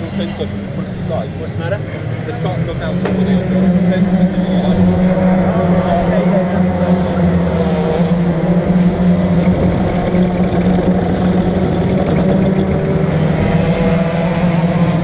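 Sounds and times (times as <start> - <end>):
kart engine idling: 0.0 - 15.0.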